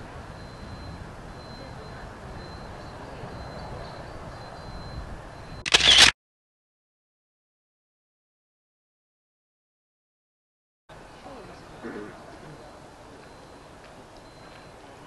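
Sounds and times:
faint outdoor background: 0.0s - 6.2s, 10.9s - 15.0s
camera shutter click: 5.7s - 6.1s.

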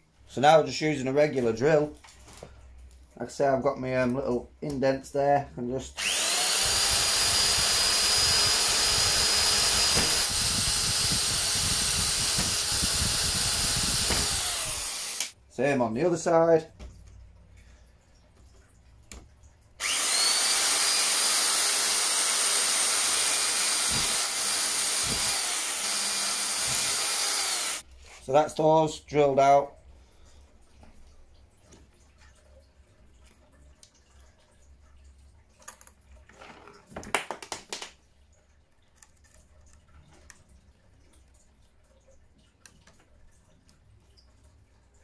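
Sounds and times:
power drill whining: 6.0s - 15.4s, 19.8s - 27.8s.

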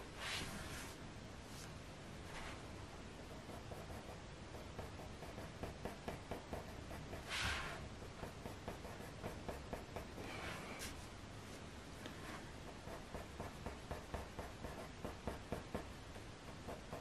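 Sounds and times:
coloured pencil scratching on paper: 3.3s - 10.9s, 12.2s - 17.0s.

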